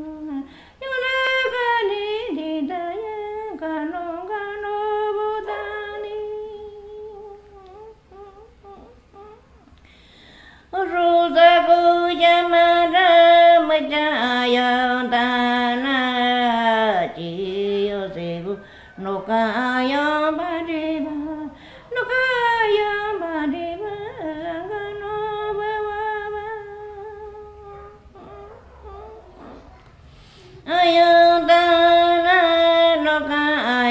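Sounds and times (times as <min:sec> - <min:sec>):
woman singing unaccompanied: 0:00.0 - 0:09.7, 0:10.5 - 0:29.7, 0:30.6 - 0:33.9.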